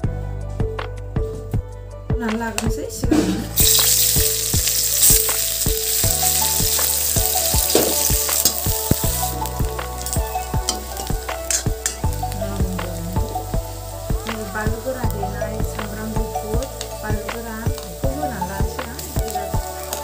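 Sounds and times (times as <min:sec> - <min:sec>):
background music with beat: 0:00.0 - 0:20.0
metal spatula stirring: 0:03.6 - 0:15.0
onions sizzling in oil: 0:03.6 - 0:20.0.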